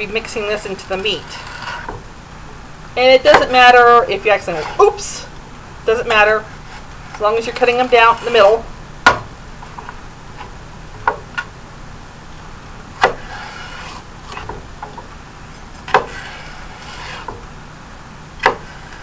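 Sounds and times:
knife scraping along celery: 0.6s - 1.9s, 4.2s - 5.2s, 6.0s - 8.6s, 13.1s - 14.5s, 15.8s - 17.4s, 18.4s - 19.0s.

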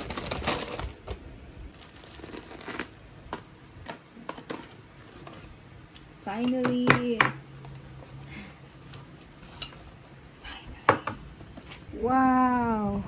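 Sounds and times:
plastic snack bag rustling: 0.0s - 3.0s.

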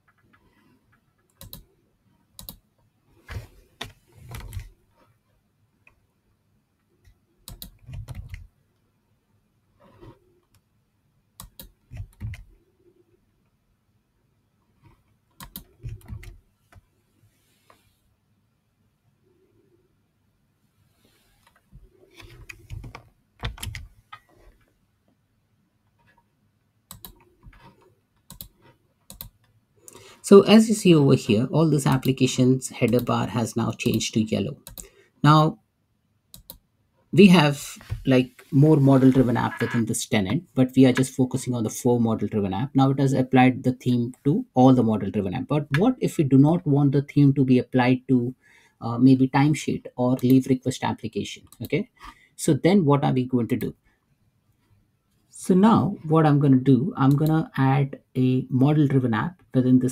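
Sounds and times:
keyboard and mouse clicks: 0.0s - 1.7s, 2.4s - 2.6s, 3.2s - 4.7s, 7.0s - 8.5s, 11.4s - 12.5s, 14.9s - 16.8s, 22.2s - 24.3s, 26.9s - 30.0s, 34.6s - 34.9s, 36.3s - 36.6s
computer keyboard key presses: 22.4s - 23.8s.

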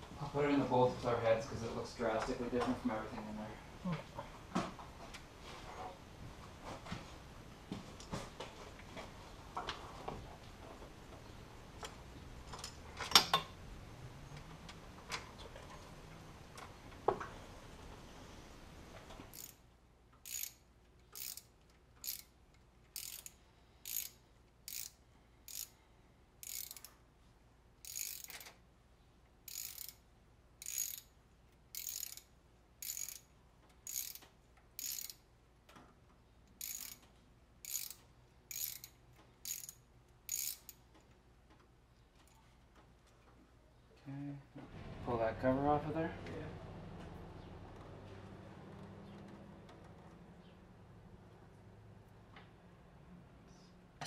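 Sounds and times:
ratchet wrench clicking: 19.3s - 19.6s, 20.2s - 25.8s, 26.4s - 27.0s, 27.8s - 28.6s, 29.5s - 30.0s, 30.6s - 35.2s, 36.6s - 40.8s.

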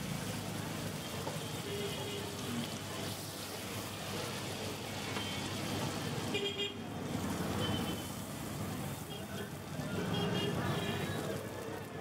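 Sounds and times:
butter sizzling on griddle: 0.0s - 6.3s
street traffic: 0.0s - 12.0s.

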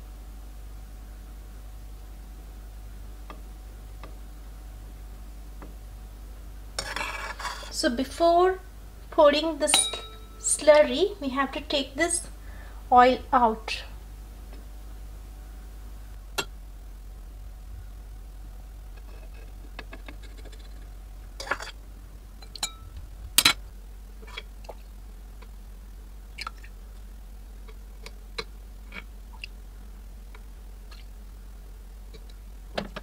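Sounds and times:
low steady hum: 0.0s - 33.0s
ladle clinking against metal pot: 9.7s - 10.3s.

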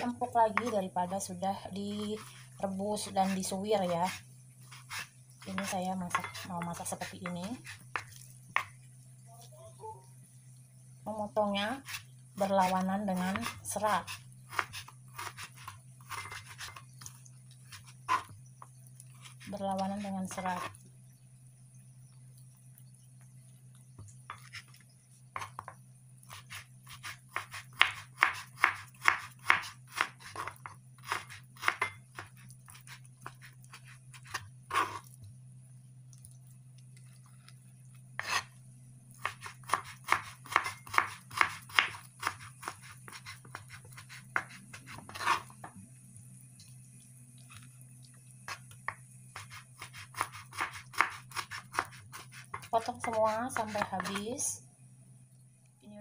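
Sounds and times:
knife slicing on wooden cutting board: 39.2s - 45.6s.

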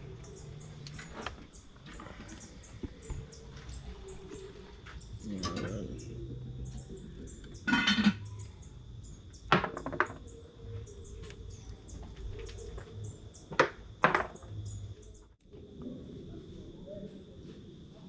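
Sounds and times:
birds chirping: 0.0s - 17.3s
sharp knocks and clatters: 9.5s - 10.3s, 13.5s - 14.5s.

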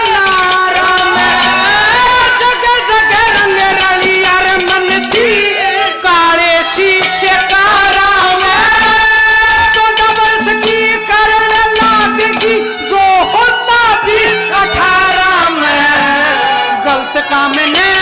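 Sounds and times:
drum strokes: 0.0s - 5.6s, 6.8s - 13.4s
folk melody with slides: 0.0s - 18.0s.

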